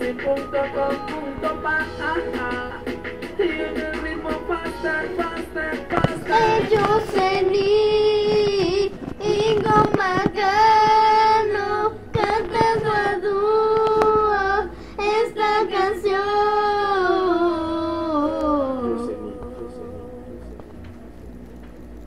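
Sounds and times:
girl singing slow melody: 3.4s - 20.4s.

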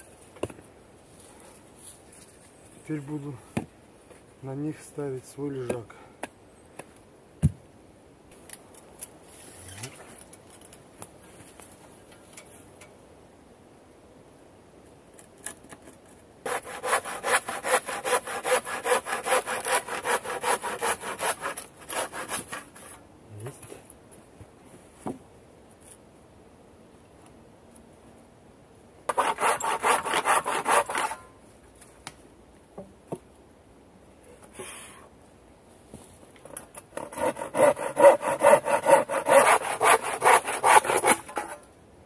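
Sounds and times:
hand saw cutting wood: 16.4s - 23.0s, 29.1s - 31.3s, 36.8s - 41.6s.

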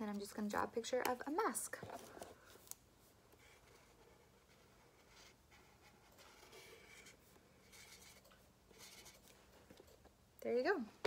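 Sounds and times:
marker scratching on paper: 3.4s - 9.2s.

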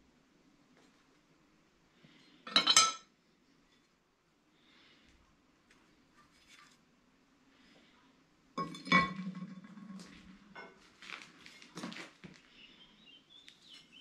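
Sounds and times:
iron clanking on anvil: 2.5s - 3.0s, 8.6s - 9.5s.

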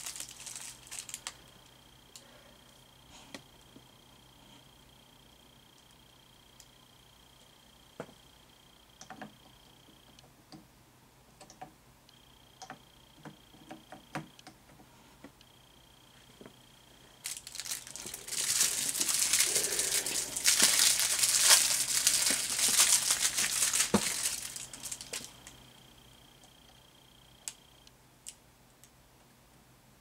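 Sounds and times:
packaging crinkling: 0.0s - 1.5s, 17.2s - 25.6s.

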